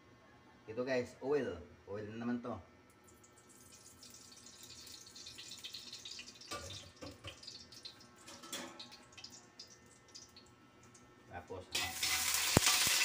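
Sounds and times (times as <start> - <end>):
oil hissing and crackling in wok: 3.2 - 10.5, 11.7 - 13.0.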